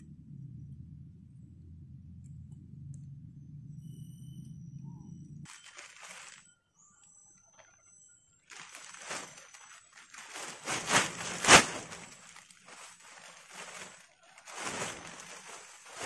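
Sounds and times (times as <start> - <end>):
rustling and handling noises: 5.5 - 6.5, 8.4 - 16.0.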